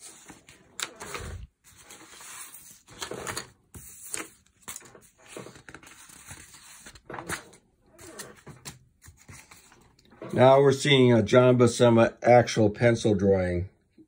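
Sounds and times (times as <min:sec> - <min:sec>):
paper sheets rustling and sliding: 0:00.0 - 0:10.6.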